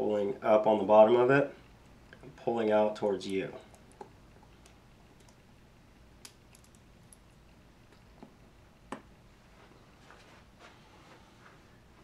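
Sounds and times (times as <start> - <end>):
faint sharp clicks and taps: 3.2 - 5.4.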